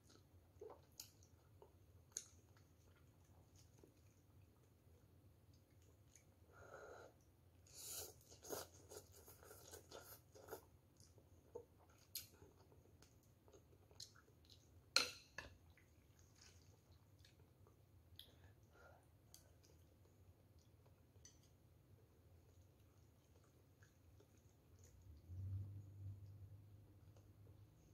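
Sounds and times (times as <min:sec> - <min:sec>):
person slurping and chewing: 0:07.6 - 0:10.7.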